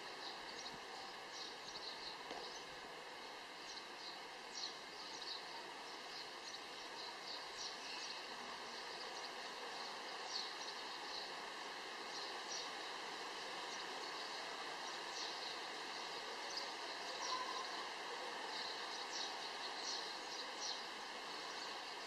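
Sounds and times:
steady background hiss: 0:00.0 - 0:22.0
small birds chirping: 0:00.2 - 0:02.8, 0:03.5 - 0:22.0.

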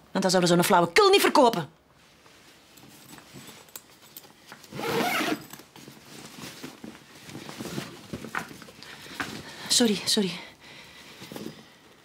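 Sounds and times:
jacket fabric rustling: 0:01.9 - 0:10.2, 0:10.8 - 0:12.0.

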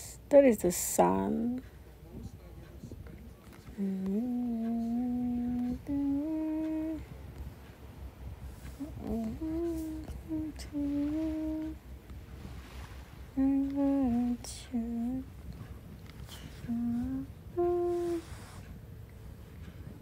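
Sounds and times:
person humming slow tune: 0:03.7 - 0:07.7, 0:08.4 - 0:20.0.

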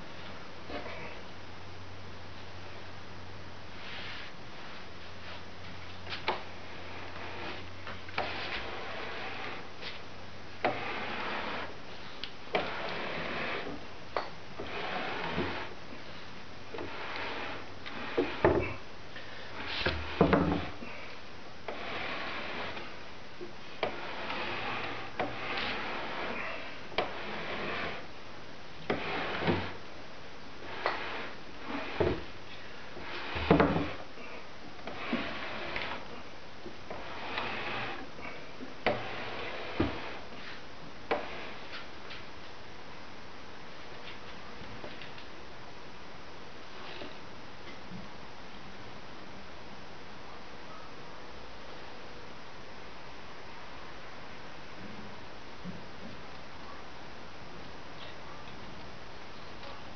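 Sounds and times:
press bed sliding past roller: 0:06.2 - 0:10.0, 0:10.6 - 0:11.7, 0:12.5 - 0:13.8, 0:14.6 - 0:15.7, 0:16.7 - 0:18.8, 0:19.5 - 0:21.0, 0:21.7 - 0:23.0, 0:23.8 - 0:28.1, 0:28.9 - 0:29.8, 0:30.6 - 0:32.3, 0:32.9 - 0:34.1, 0:34.8 - 0:36.1, 0:36.9 - 0:41.8
wooden knocks and clunks: 0:18.1 - 0:18.8, 0:19.8 - 0:20.8.

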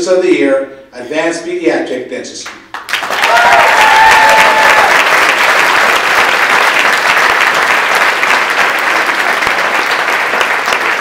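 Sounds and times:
audience applauding: 0:02.7 - 0:11.0.

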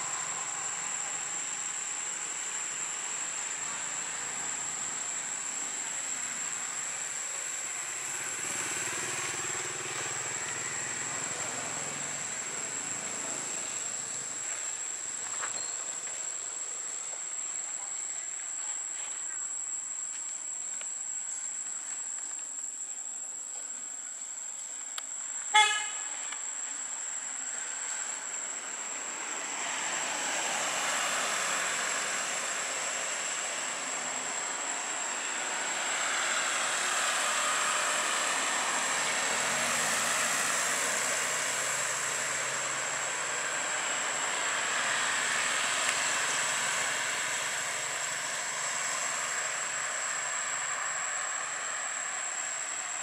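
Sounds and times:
high insect whine: 0:00.0 - 0:53.0
passing traffic: 0:00.0 - 0:53.0
vehicle horn toot: 0:25.5 - 0:26.2.

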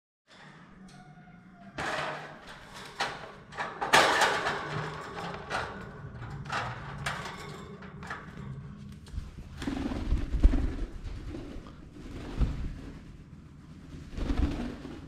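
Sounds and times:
bamboo cage knocking and rattling: 0:01.8 - 0:08.4
low rumble: 0:08.0 - 0:15.0.

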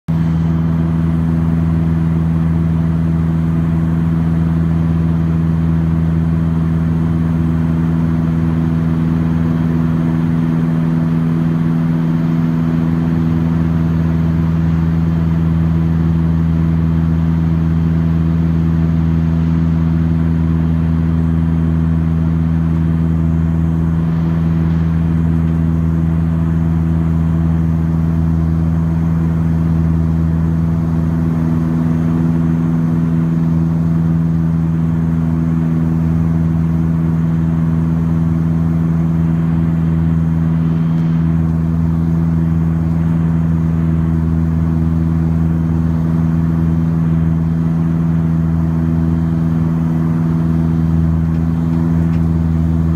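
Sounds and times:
propeller engine cabin drone: 0:00.1 - 0:52.9.

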